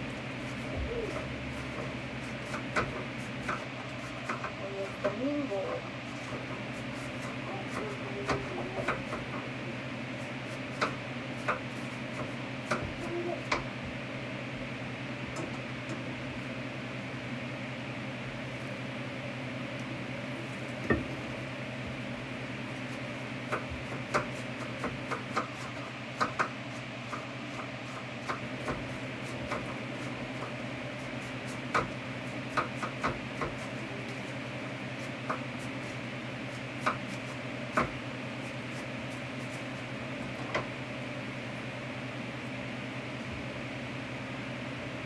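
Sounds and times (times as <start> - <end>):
steady hum: 0.0 - 45.0
knife chopping on plastic board: 1.1 - 4.6, 10.5 - 13.7, 23.5 - 29.8, 31.4 - 33.7, 36.8 - 38.0.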